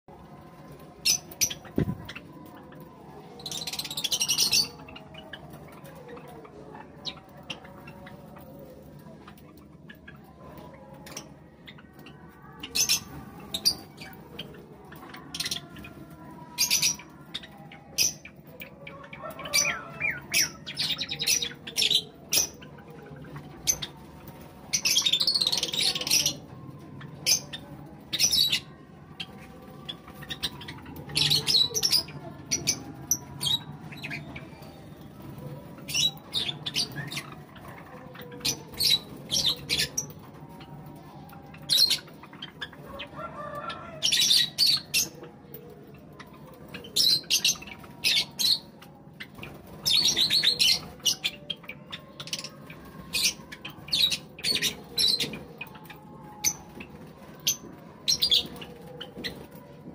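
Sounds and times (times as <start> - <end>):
sparrows chirping: 0.3 - 59.9.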